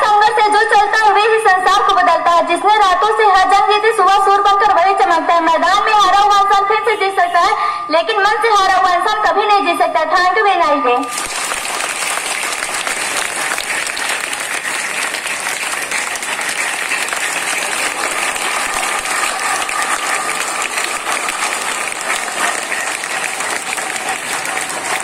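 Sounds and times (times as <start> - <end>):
children applauding: 11.0 - 25.0.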